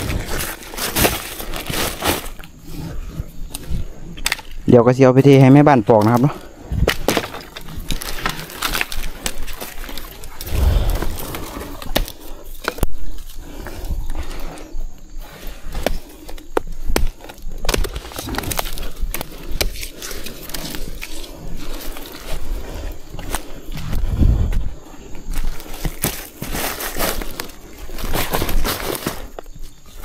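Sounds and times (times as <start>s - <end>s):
rustling of dry litter: 0.0s - 3.9s
bamboo shoots snapping: 4.2s - 4.6s, 6.0s - 13.0s.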